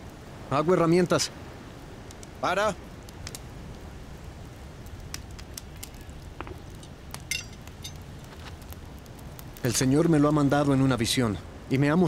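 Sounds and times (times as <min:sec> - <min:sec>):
fire crackling: 0:00.0 - 0:12.0
metal tongs clinking: 0:06.8 - 0:08.0.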